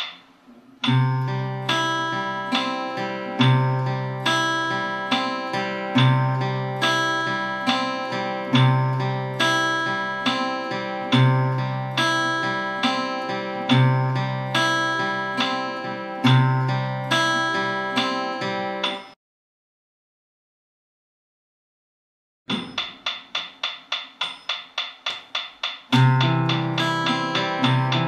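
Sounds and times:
fingerpicked acoustic guitar: 0.8s - 19.0s, 25.9s - 28.0s.

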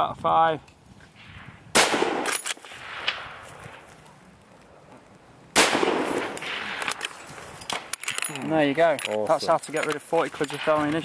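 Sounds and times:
rifle shots with rolling echo: 1.2s - 3.9s, 5.5s - 8.0s, 10.4s - 11.0s.

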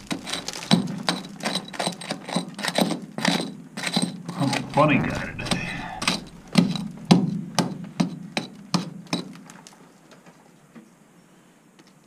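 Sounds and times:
rock pick striking rock: 0.0s - 9.4s.

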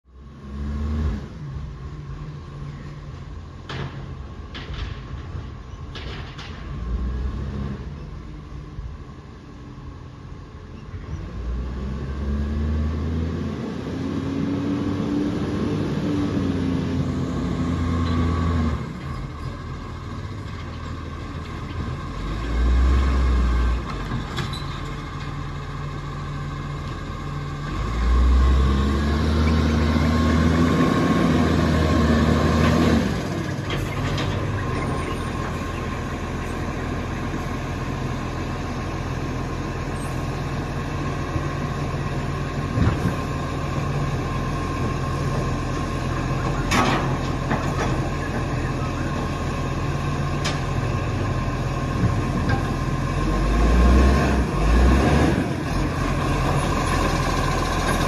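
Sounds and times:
garbage truck diesel engine revving: 0.2s - 2.6s, 11.2s - 58.0s.

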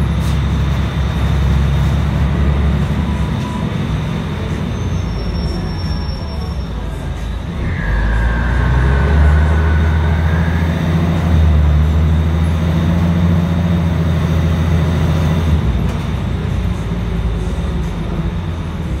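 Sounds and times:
bus diesel engine under load: 0.0s - 19.0s
faint high whine: 3.1s - 13.8s.

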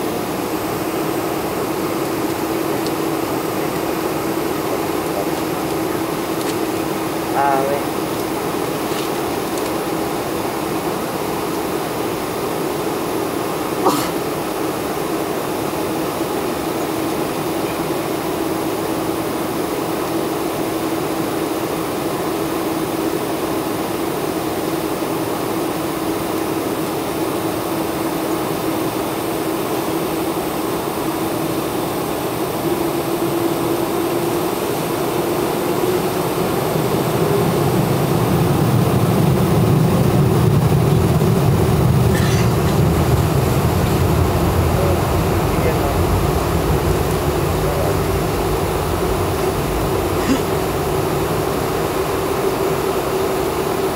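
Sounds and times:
jet engine whine: 0.0s - 53.9s
deep engine rumble: 37.2s - 52.6s.

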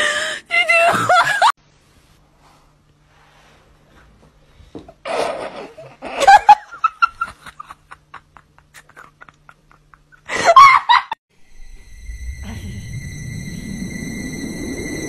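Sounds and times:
person laughing hard: 5.1s - 11.2s.

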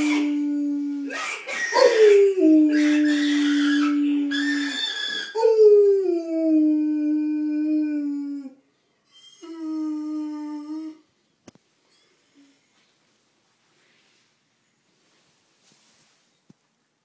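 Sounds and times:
dog howling: 0.0s - 8.5s.

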